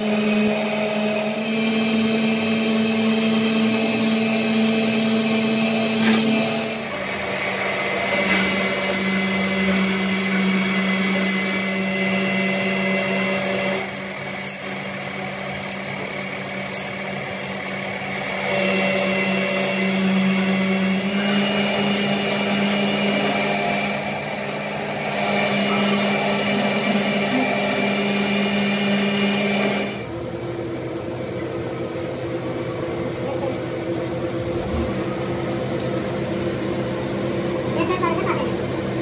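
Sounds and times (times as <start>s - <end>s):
electric motor whining: 34.0s - 37.7s.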